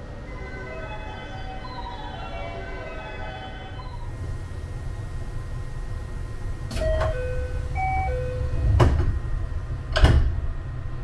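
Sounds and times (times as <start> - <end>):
idling train rumble: 0.0 - 11.0
train doors clunking shut: 6.6 - 10.6
electronic door warning chime: 6.7 - 8.6.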